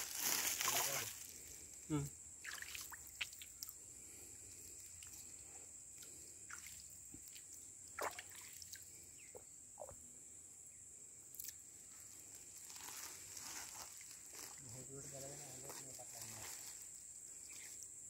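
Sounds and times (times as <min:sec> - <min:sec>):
water dripping and trickling: 0:02.4 - 0:03.8, 0:04.7 - 0:09.0.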